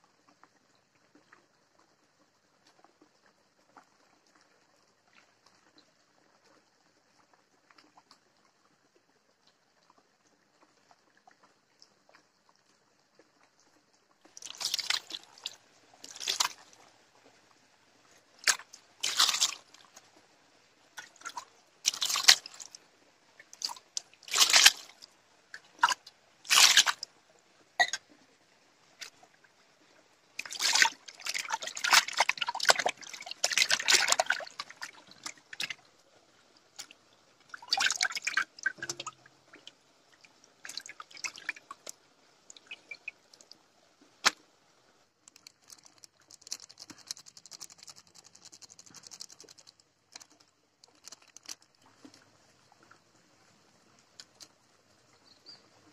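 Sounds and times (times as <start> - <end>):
water splashing over fish: 14.2 - 27.2, 28.8 - 44.4, 45.2 - 53.4
hands swishing fish in water: 14.3 - 17.3, 18.2 - 20.2, 20.9 - 27.2, 30.4 - 35.9, 36.7 - 44.5, 45.2 - 53.1.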